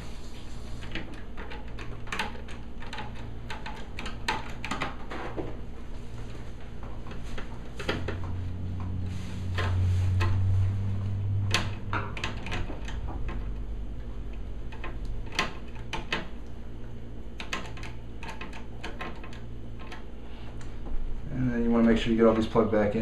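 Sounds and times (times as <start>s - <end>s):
low hum: 5.7s - 15.2s.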